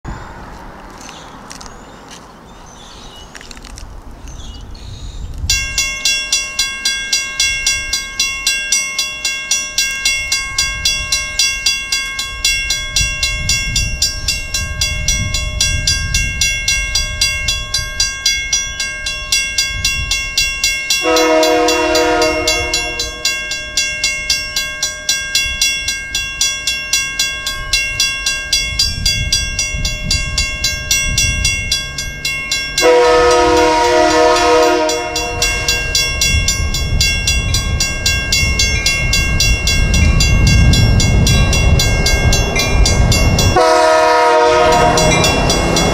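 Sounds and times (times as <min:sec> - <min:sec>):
locomotive horn blast: 0:21.0 - 0:23.4, 0:32.8 - 0:35.9, 0:43.6 - 0:45.9
mechanical bell ringing: 0:34.6 - 0:43.8.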